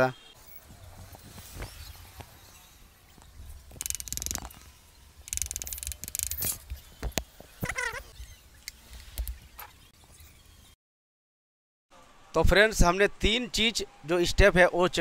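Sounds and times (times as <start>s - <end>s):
socket wrench clicking: 3.8s - 4.5s, 5.3s - 6.6s
brief squeak: 7.6s - 8.4s.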